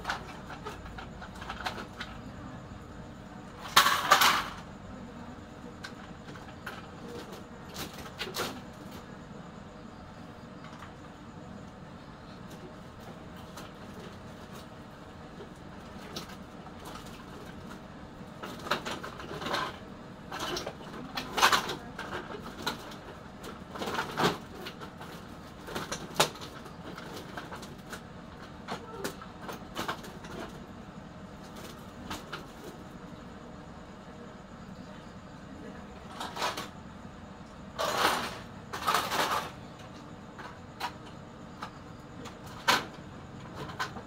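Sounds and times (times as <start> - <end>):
steady background hum: 0.0 - 44.0
circuit boards clattering: 3.6 - 4.7, 37.8 - 39.6.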